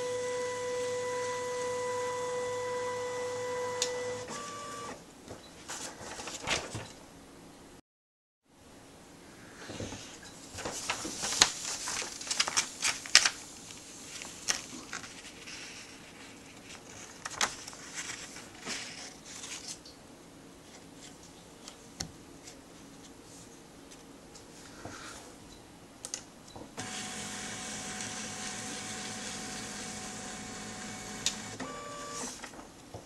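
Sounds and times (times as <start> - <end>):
paper rustling and crackling: 5.6 - 7.0, 9.8 - 19.9.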